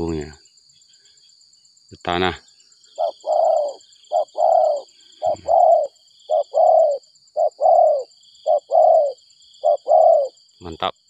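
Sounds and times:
dove cooing: 3.0s - 10.4s.

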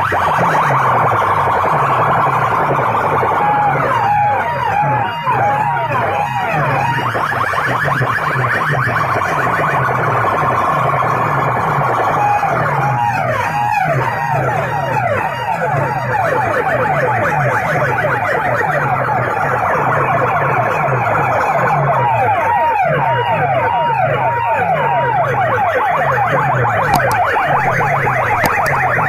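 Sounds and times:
siren-style tone sweeps: 0.0s - 29.0s
low pulsing beat: 26.9s - 29.0s.

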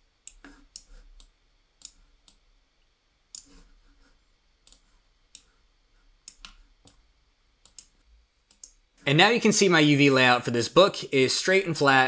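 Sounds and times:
computer mouse clicks: 0.2s - 2.4s, 3.3s - 3.7s, 4.6s - 5.6s, 6.2s - 7.0s, 7.6s - 8.8s.

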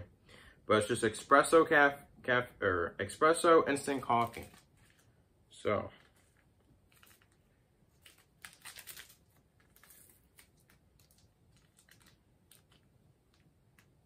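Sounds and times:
paper packet crinkling: 3.9s - 5.2s, 5.9s - 14.0s.

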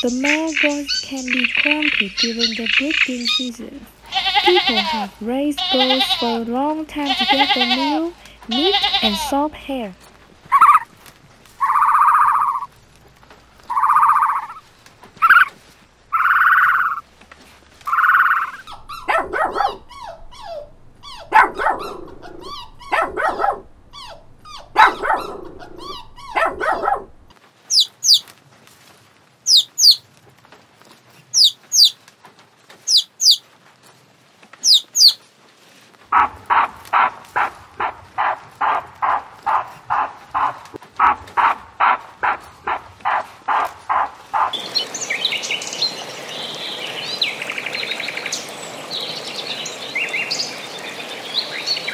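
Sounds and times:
high-pitched bird chirps: 0.0s - 3.5s, 27.7s - 28.2s, 31.4s - 31.9s
short animal calls: 10.5s - 10.9s
rapid short repeated calls: 15.2s - 17.0s
dog barking: 18.6s - 27.2s, 36.1s - 44.6s.

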